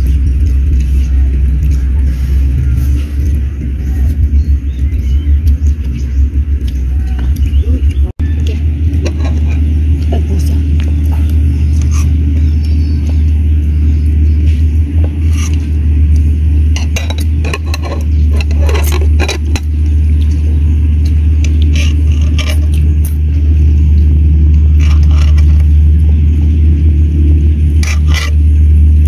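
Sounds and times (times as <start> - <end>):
crunchy chewing clicks: 0.0 - 29.0
low rumble: 0.0 - 29.0.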